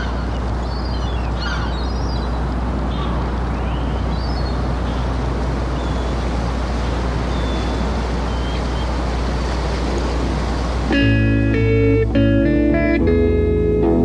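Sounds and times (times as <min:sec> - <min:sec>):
steady rushing noise: 0:00.0 - 0:13.8.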